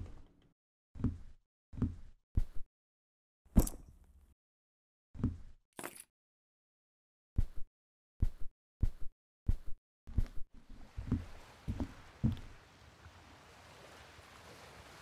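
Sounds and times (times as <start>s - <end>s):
footsteps: 10.2s - 12.6s.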